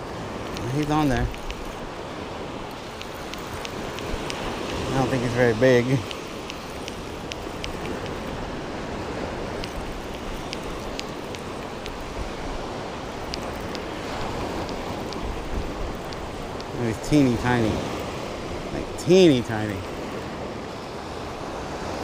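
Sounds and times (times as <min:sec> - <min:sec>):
faint high ticks: 0:00.0 - 0:02.0, 0:02.6 - 0:08.5, 0:09.4 - 0:18.2
ocean surf on beach: 0:00.0 - 0:22.0.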